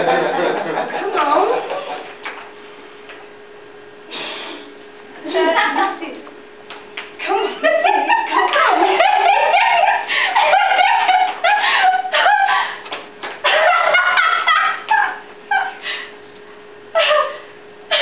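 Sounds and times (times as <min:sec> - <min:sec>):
women laughing: 0:00.0 - 0:02.1, 0:07.3 - 0:12.8, 0:13.4 - 0:16.1, 0:16.9 - 0:18.0.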